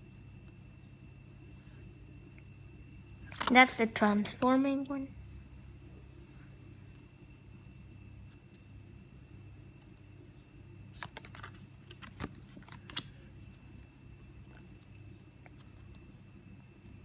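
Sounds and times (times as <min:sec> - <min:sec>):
faint steady hum: 0:00.0 - 0:17.0
card clicks and snaps: 0:11.0 - 0:13.1.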